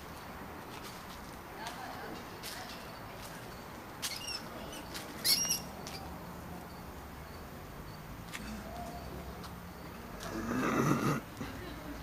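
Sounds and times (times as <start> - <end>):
rat squeaking: 4.0 - 6.0.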